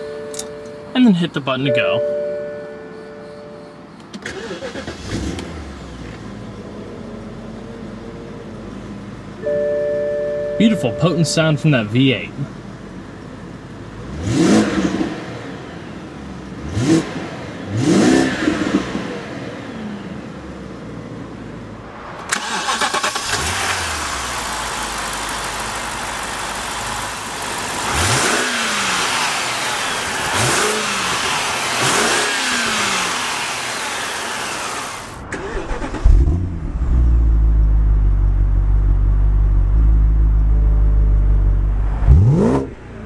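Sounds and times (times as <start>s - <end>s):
car engine revving: 4.2s - 9.2s, 13.8s - 43.0s.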